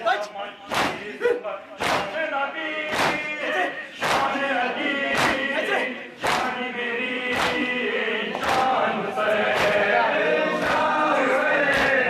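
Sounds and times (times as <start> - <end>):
men chanting in unison: 0.0 - 12.0
chest-beating slaps: 0.7 - 1.1, 1.8 - 2.2, 2.8 - 3.3, 4.0 - 4.4, 5.1 - 5.5, 6.2 - 6.6, 7.3 - 7.7, 8.4 - 8.8, 9.5 - 10.0, 10.6 - 10.9, 11.6 - 12.0.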